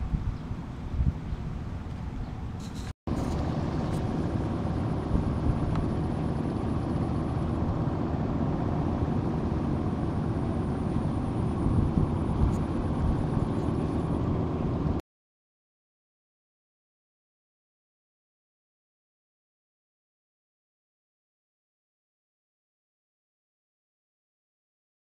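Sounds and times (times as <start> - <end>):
low outdoor rumble: 0.0 - 15.0
faint high whine: 2.6 - 15.0.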